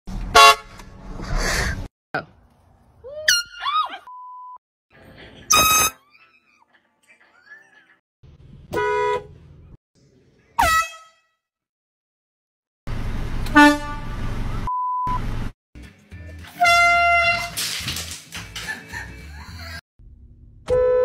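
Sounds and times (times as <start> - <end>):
air horn blasts: 0.3 - 0.8, 8.7 - 9.3, 10.6 - 11.2, 13.5 - 14.2, 16.6 - 17.5, 20.7 - 21.0.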